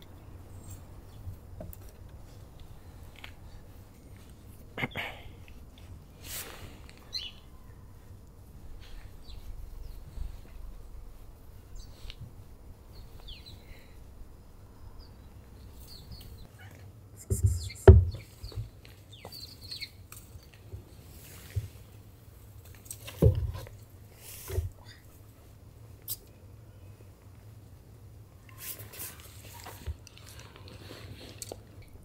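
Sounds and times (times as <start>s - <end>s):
faint bird chirps: 7.0s - 8.0s, 12.9s - 14.0s.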